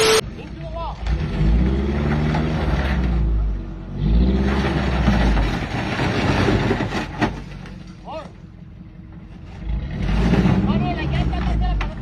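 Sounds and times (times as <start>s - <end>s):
engine revving hard: 9.6s - 11.4s.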